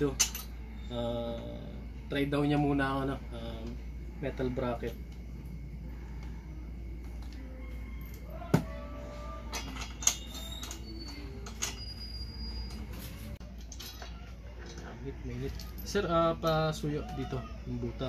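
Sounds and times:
metal bracket clinking and knocking: 0.0s - 0.6s, 9.5s - 12.0s.

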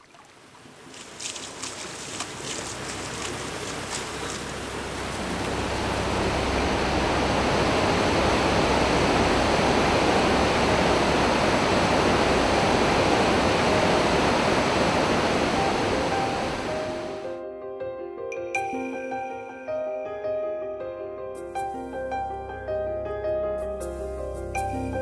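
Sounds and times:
rushing river water: 0.0s - 17.3s.

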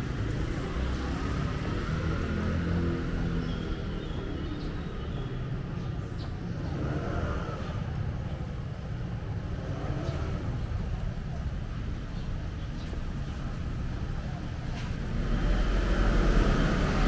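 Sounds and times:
traffic passing: 0.0s - 17.0s
loud engine: 15.1s - 17.0s.

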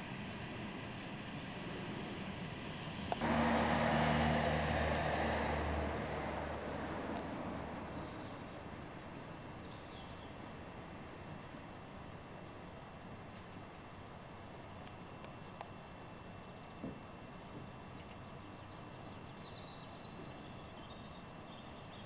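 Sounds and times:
electric tram motor hum: 0.0s - 11.1s
tram wheel noise: 0.6s - 9.3s
small birds chirping: 16.9s - 22.0s.

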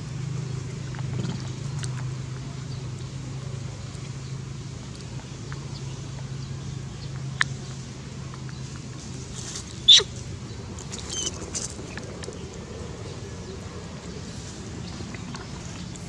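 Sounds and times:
monkey squealing: 9.9s - 10.2s, 11.0s - 11.5s.

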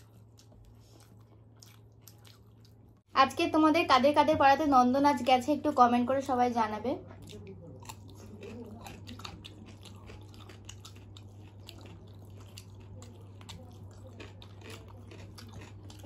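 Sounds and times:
people chewing: 0.0s - 3.1s, 7.0s - 16.0s
low electrical hum: 0.0s - 16.0s
cucumber crunching: 7.2s - 16.0s.

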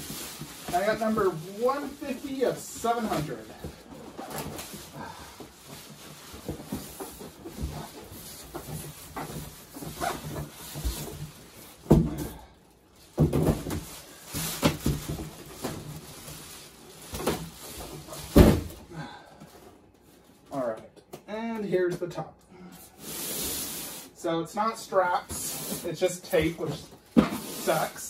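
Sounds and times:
plastic bag crinkling: 0.0s - 3.9s
cardboard box thumps: 18.3s - 18.8s.

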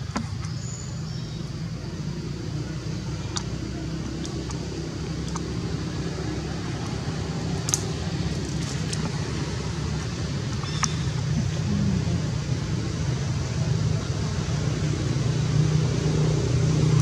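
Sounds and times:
faint sharp clicks: 7.7s - 7.9s.

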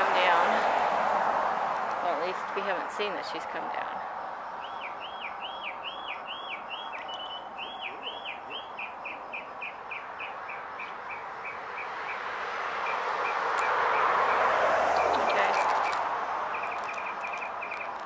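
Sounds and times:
vehicle passing: 0.0s - 18.0s
small bird whistling song: 4.6s - 12.2s, 16.5s - 18.0s.

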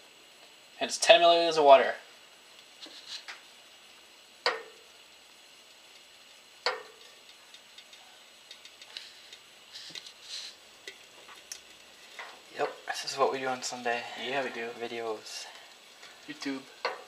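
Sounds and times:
faint ticks: 5.9s - 10.2s.

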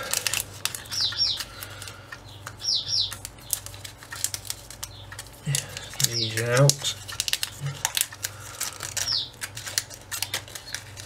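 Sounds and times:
plastic bag crinkling: 0.0s - 11.0s
small bird chirping: 0.7s - 3.8s, 4.7s - 7.0s, 9.0s - 9.4s.

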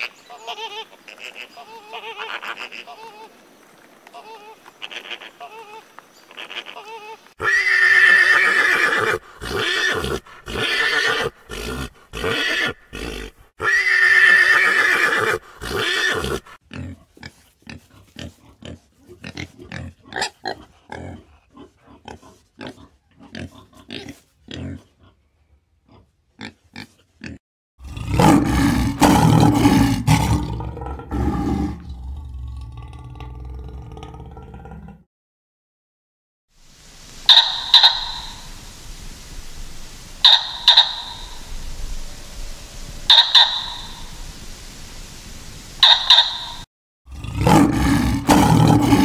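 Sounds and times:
horse neighing: 6.4s - 16.5s
pigs grunting and squealing: 6.4s - 25.2s, 25.8s - 35.0s, 47.1s - 49.0s
lion roaring: 27.8s - 35.0s, 47.1s - 49.0s.

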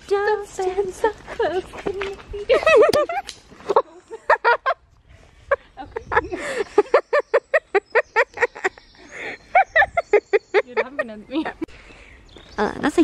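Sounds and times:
women laughing hard: 2.3s - 11.7s.

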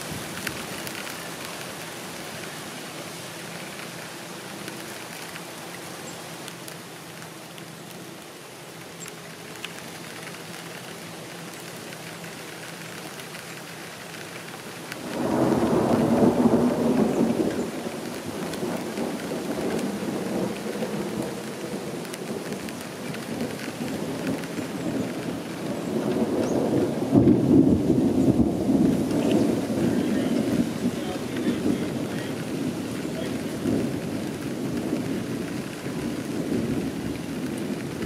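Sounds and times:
rain falling: 0.0s - 38.0s
thunder rumbling: 14.9s - 38.0s.

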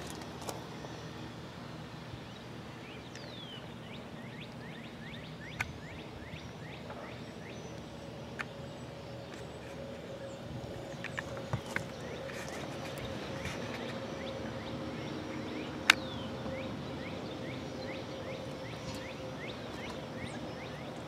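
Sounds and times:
faint steady hum: 0.0s - 21.0s
bird chirping: 2.0s - 21.0s
sharp clicks: 15.8s - 16.0s.

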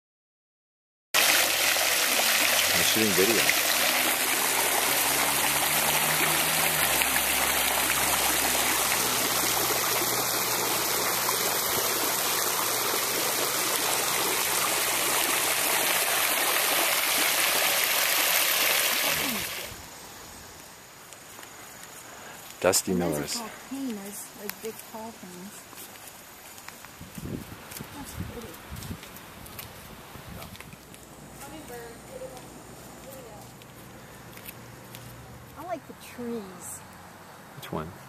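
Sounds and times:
fountain water splashing: 1.2s - 19.8s.

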